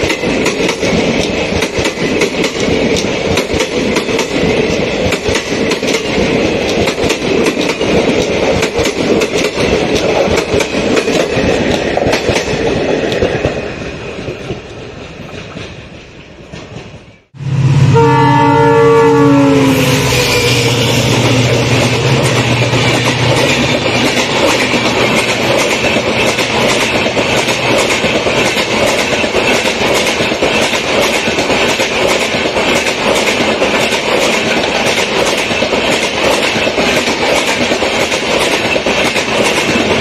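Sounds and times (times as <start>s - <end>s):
train coaches rushing past: 0.0s - 40.0s
locomotive horn: 17.4s - 21.2s.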